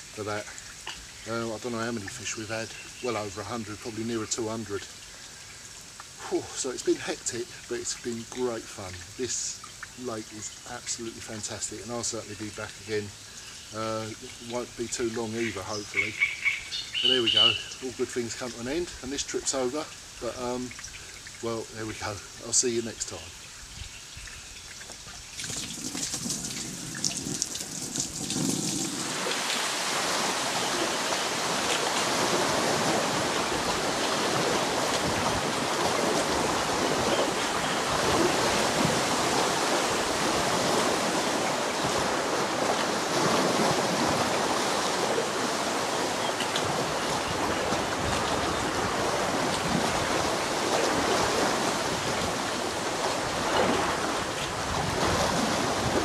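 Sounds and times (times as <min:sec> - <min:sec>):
small waves lapping shore: 0:00.0 - 0:56.0.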